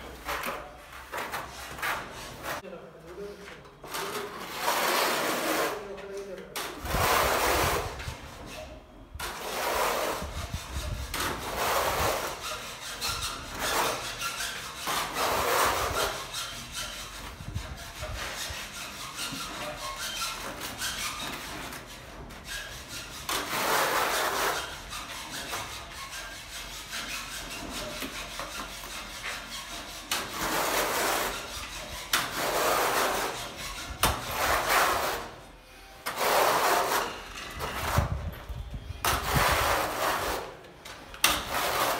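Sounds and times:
trowel scraping adhesive on wall: 0.0s - 2.7s, 3.8s - 38.4s, 39.0s - 41.9s.

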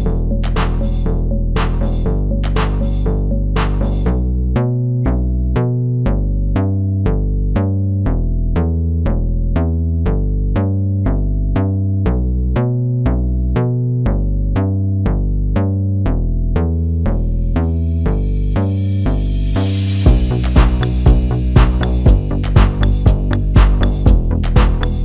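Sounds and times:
drum-machine beat: 0.0s - 4.1s, 19.2s - 25.0s
sharp synthesizer notes: 0.0s - 4.3s, 17.1s - 25.0s
shifting bass line: 0.0s - 25.0s.

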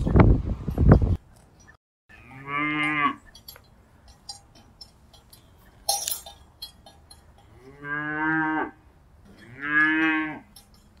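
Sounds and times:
cow mooing: 2.1s - 3.2s, 7.6s - 8.8s, 9.4s - 10.5s.

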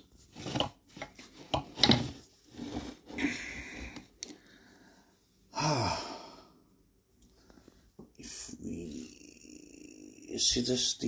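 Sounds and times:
man sighing: 3.2s - 4.1s, 5.5s - 6.6s.

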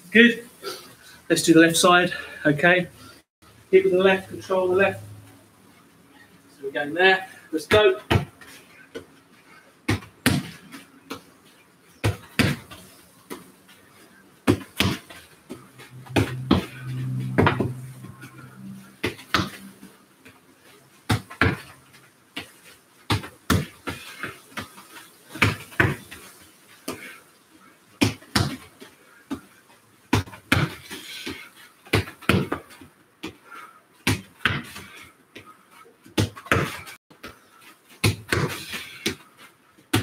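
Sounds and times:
low hum: 15.8s - 19.0s.

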